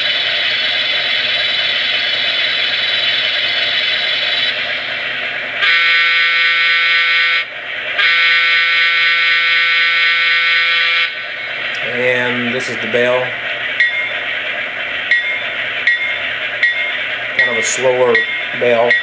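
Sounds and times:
recorded diesel engines idling: 0.0 - 19.0
model locomotive horn blasts: 5.6 - 11.2.

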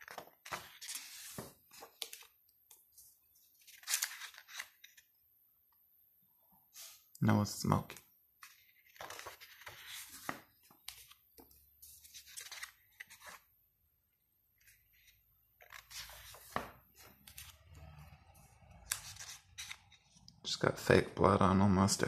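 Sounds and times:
book pages turning: 0.0 - 5.1, 7.9 - 13.5, 14.5 - 20.4.

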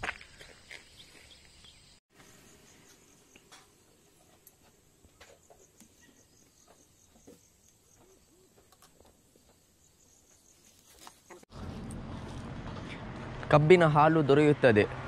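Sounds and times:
insects chirping: 0.0 - 11.4.

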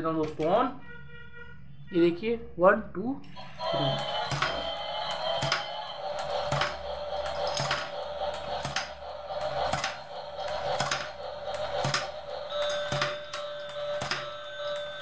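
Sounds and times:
thin electronic toy tune: 3.4 - 7.6, 11.6 - 15.0.

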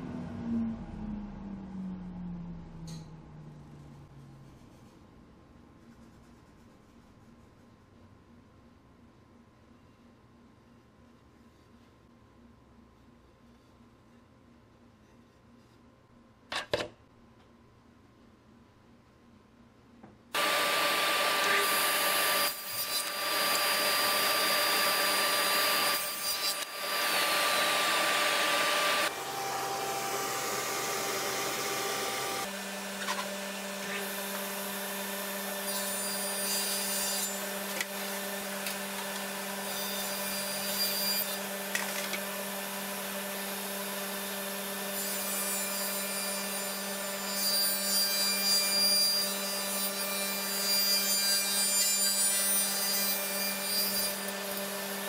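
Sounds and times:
loud power saw running: 20.4 - 35.6
table saw ripping wood: 20.4 - 42.4
dust collection humming: 26.6 - 35.4.

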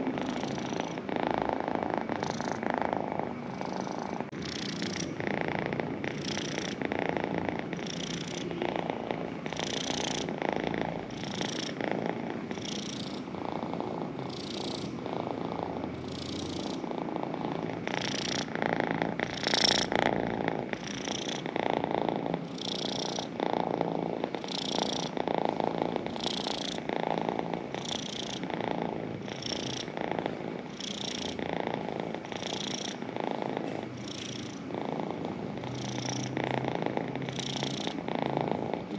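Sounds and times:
cat purring: 0.0 - 38.9.

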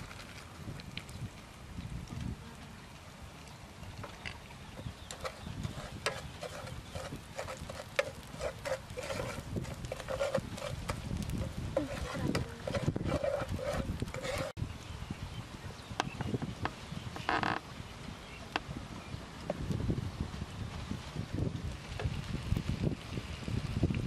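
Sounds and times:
spatula scraping frying pan: 4.8 - 14.6.

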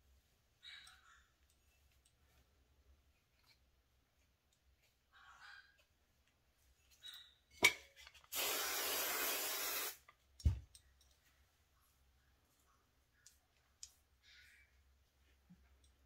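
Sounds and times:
aerosol spray hiss: 8.3 - 10.0.

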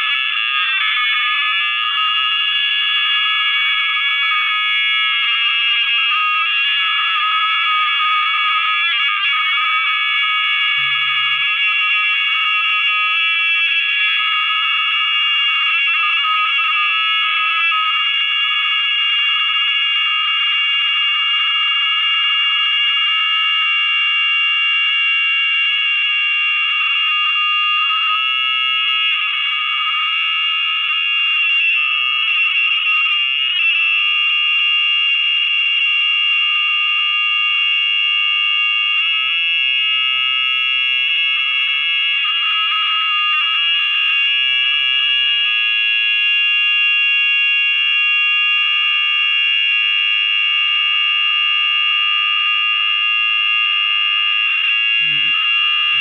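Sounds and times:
high-pitched audio feedback howl: 10.7 - 11.5, 54.8 - 56.0.

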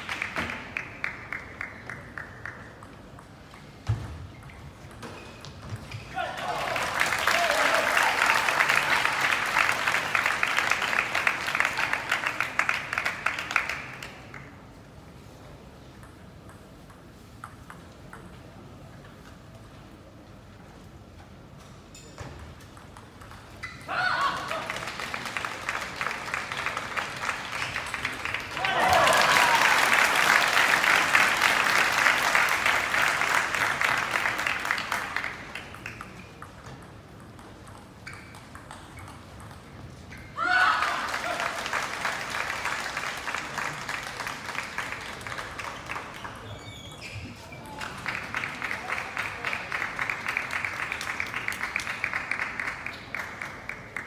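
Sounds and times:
spectators applauding: 0.0 - 2.8, 6.2 - 14.5, 24.2 - 36.2, 40.6 - 46.5, 47.8 - 54.0
low hall noise: 0.0 - 54.0.

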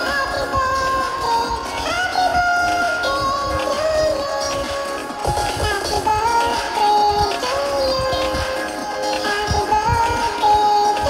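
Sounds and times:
song with sung melody and beat: 0.0 - 11.0.

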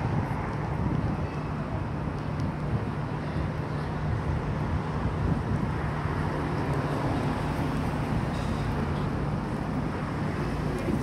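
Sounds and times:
cars and vans driving: 0.0 - 11.0.

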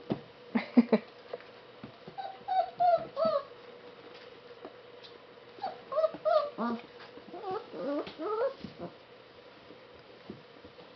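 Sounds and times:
puppies whining and yipping: 2.1 - 3.6, 5.6 - 8.9.

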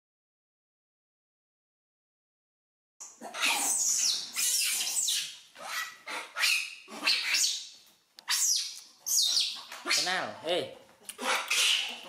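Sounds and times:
young monkeys screeching: 3.2 - 10.2, 11.2 - 12.0.

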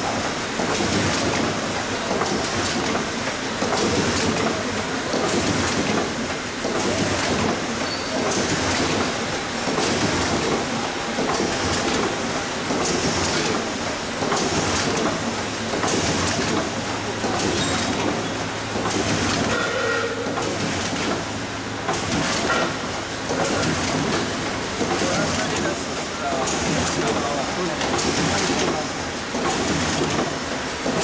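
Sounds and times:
printing machine clattering: 0.0 - 31.0.

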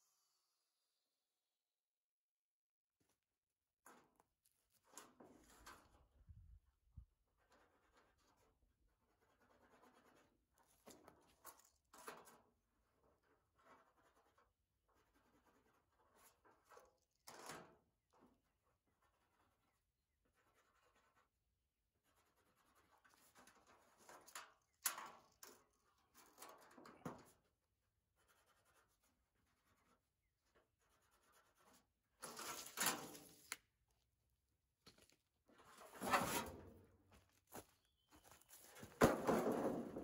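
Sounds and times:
scratching on corrugated iron: 7.3 - 17.6, 28.1 - 33.6, 35.5 - 36.8.

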